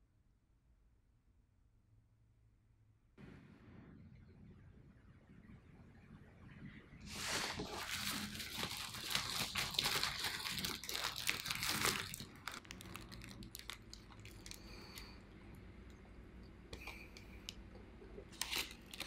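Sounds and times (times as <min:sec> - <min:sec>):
paper wrapper crinkling: 0:07.1 - 0:15.2, 0:18.2 - 0:19.0.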